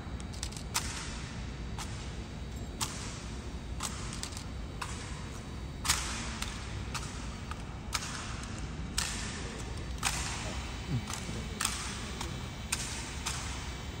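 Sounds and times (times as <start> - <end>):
low steady hum: 0.0 - 14.0
hands slapping rifles: 0.4 - 1.2, 5.8 - 13.6.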